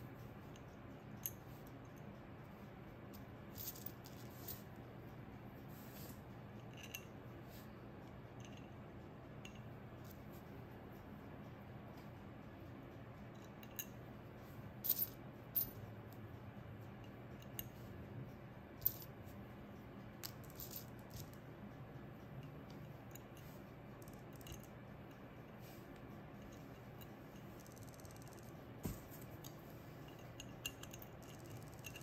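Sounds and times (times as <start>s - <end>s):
low steady hum: 0.0s - 32.0s
glass pieces clicking: 30.1s - 32.0s.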